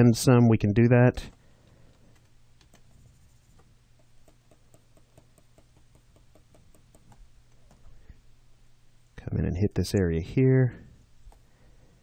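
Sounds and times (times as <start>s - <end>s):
stylus tapping on a tablet: 3.6s - 7.8s.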